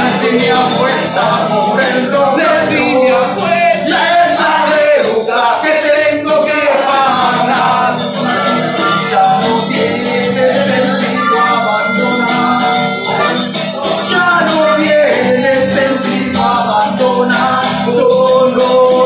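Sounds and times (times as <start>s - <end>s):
acoustic guitars strummed: 0.0s - 19.0s
person singing: 0.0s - 19.0s
ukulele strummed: 0.0s - 19.0s
harmonica held notes: 7.5s - 16.5s.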